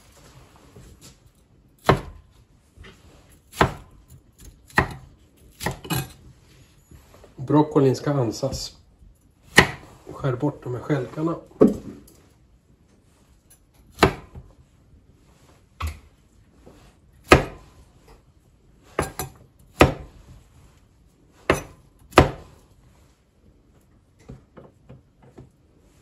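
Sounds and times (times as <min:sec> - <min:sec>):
knife chopping on wooden board: 0:01.8 - 0:02.3, 0:03.5 - 0:06.2, 0:09.5 - 0:10.0, 0:13.9 - 0:14.5, 0:17.2 - 0:17.8, 0:18.9 - 0:20.2, 0:21.4 - 0:22.6.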